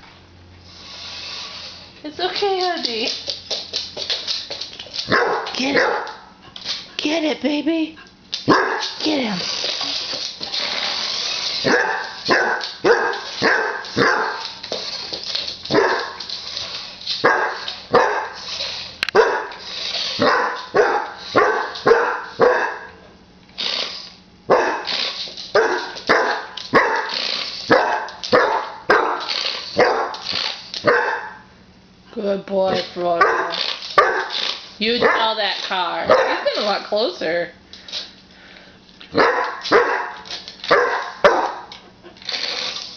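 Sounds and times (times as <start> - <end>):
dog barking: 5.1 - 6.3, 8.5 - 9.0, 11.6 - 14.4, 15.7 - 16.2, 17.2 - 18.4, 19.1 - 19.6, 20.2 - 23.0, 24.5 - 24.9, 25.5 - 30.2, 30.8 - 31.5, 33.2 - 34.4, 35.0 - 35.3, 36.1 - 36.5, 39.1 - 41.7.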